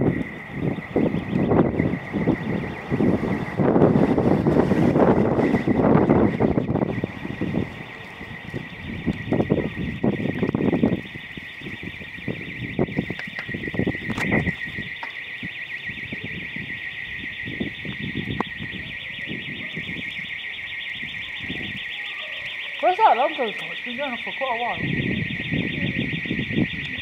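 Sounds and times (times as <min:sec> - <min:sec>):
low rumbles on microphone: 0:00.0 - 0:15.0
alarm ringing: 0:00.0 - 0:27.0.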